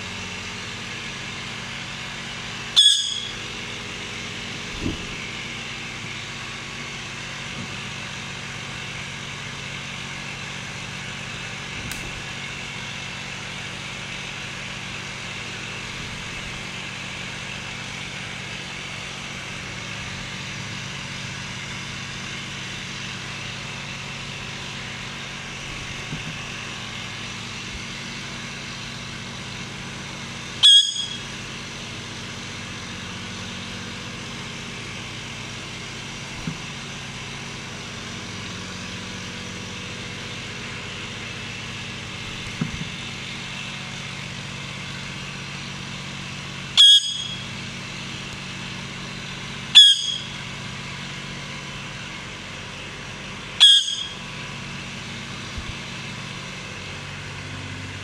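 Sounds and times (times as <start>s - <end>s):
steady background drone: 2.6s - 6.2s
parakeet squawk: 2.8s - 3.4s, 49.8s - 50.3s, 53.6s - 54.2s.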